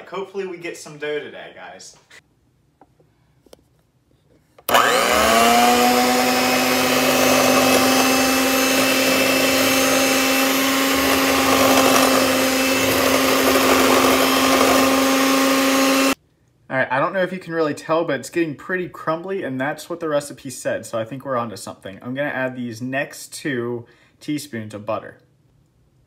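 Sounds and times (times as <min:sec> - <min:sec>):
electric hand mixer running: 0:04.7 - 0:16.2.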